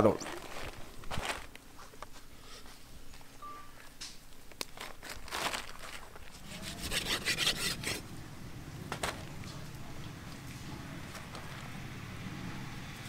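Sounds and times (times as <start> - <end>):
knife sawing through fish: 6.4 - 8.0.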